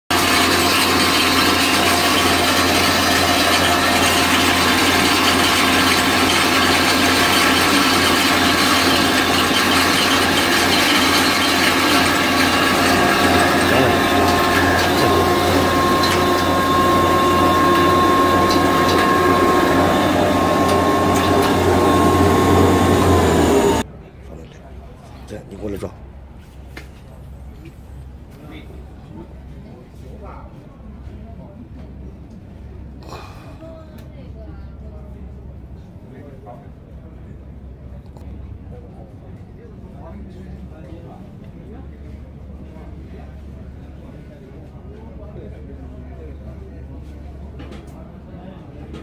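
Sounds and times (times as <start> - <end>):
grain mill grinding corn: 0.1 - 23.8
mill motor whine: 0.1 - 23.9.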